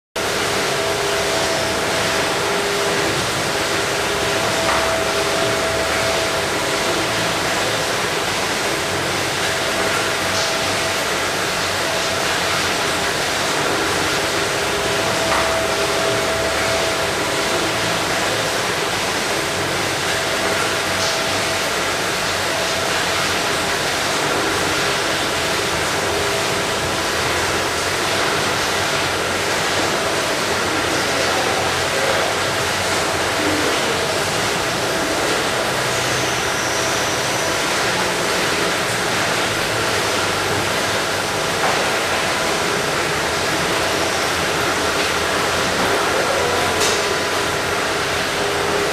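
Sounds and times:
machinery and water spray rushing: 0.2 - 48.9.

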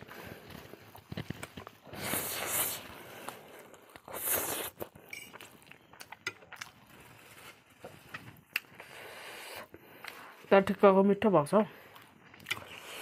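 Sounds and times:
wet chewing with clicks: 0.3 - 7.2, 7.8 - 8.9, 11.8 - 13.0
person slurping noodles: 1.8 - 5.0, 12.5 - 13.0.

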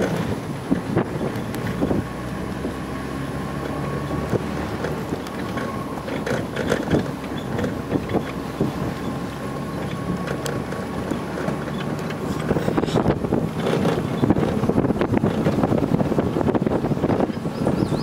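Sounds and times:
vehicle engine rumbling: 0.0 - 18.0
wind buffeting microphone: 0.0 - 18.0
rattles and knocks: 3.6 - 16.5.

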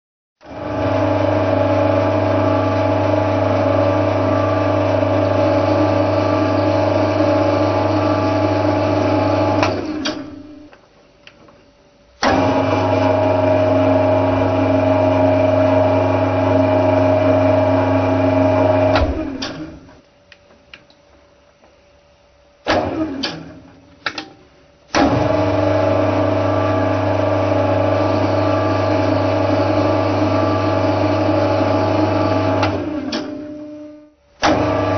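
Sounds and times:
lathe mechanical drone: 0.5 - 10.2.

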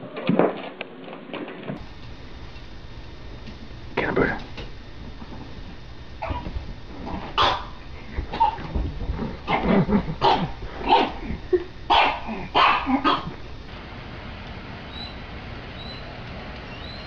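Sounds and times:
small dog barking: 6.2 - 6.5, 7.4 - 8.7, 10.2 - 11.2, 11.9 - 13.4.

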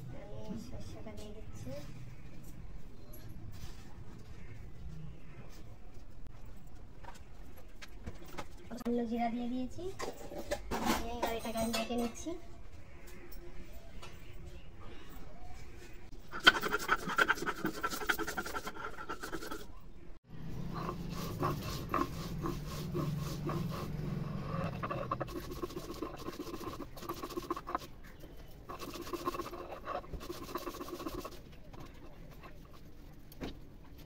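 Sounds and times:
stone grinder rasping on stone slab: 16.4 - 19.7, 20.7 - 27.9, 28.7 - 32.3.

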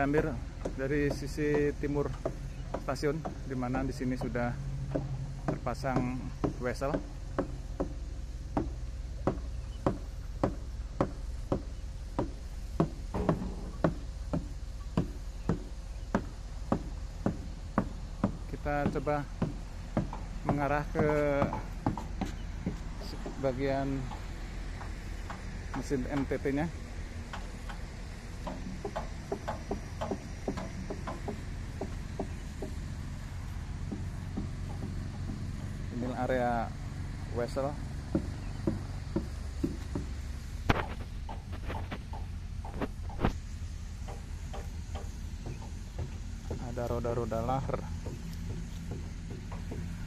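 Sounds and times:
steady low hum: 0.0 - 50.0
footsteps on gravel ballast: 39.7 - 42.1.

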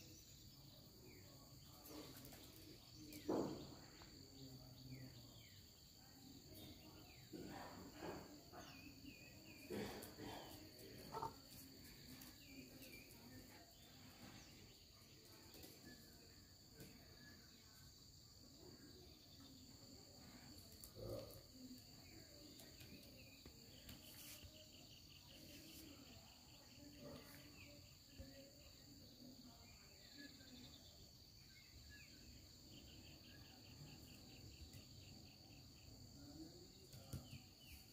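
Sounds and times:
high-pitched insect chorus: 17.0 - 37.9.

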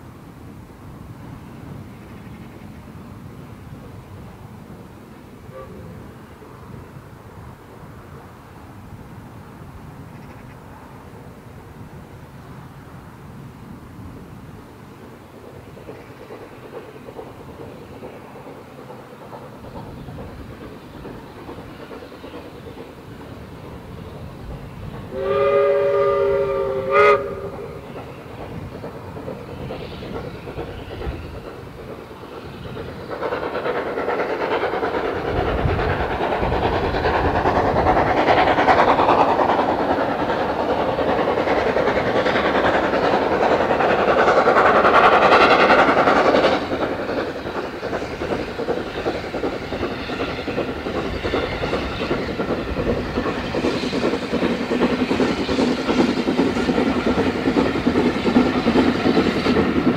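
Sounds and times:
steam train passing: 0.0 - 59.9
steam locomotive whistle: 5.5 - 6.0, 25.1 - 27.8.

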